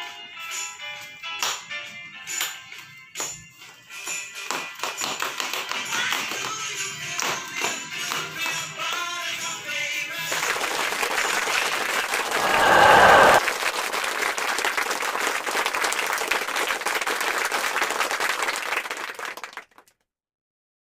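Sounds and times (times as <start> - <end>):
music with tambourine: 0.0 - 10.6
crowd applause: 14.0 - 19.7.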